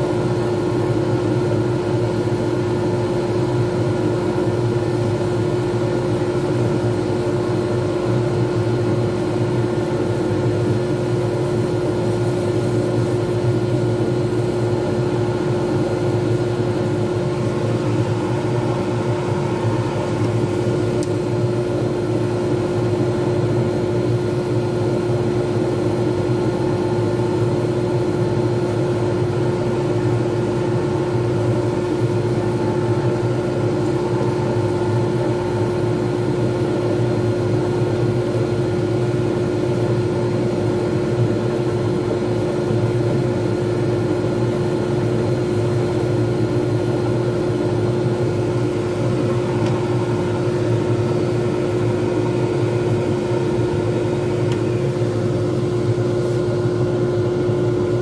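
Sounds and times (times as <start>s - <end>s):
lathe humming: 11.6s - 23.7s, 24.4s - 38.8s, 46.6s - 58.0s.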